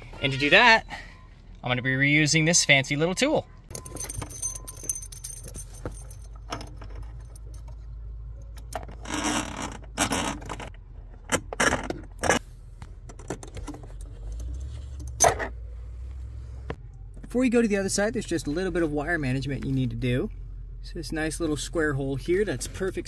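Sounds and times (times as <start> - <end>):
carpet scraping and rustling: 8.7 - 16.8.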